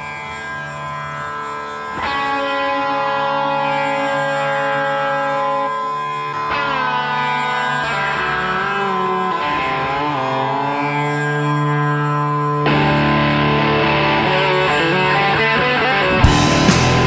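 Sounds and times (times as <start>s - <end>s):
plucked-string melody: 1.9s - 17.0s
steady low drone: 16.1s - 17.0s.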